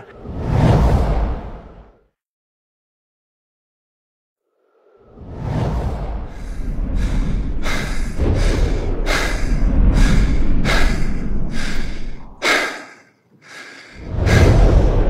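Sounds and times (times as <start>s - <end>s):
steady low rumble: 5.5s - 12.6s, 14.0s - 15.0s
rhythmic heavy breathing: 6.3s - 15.0s.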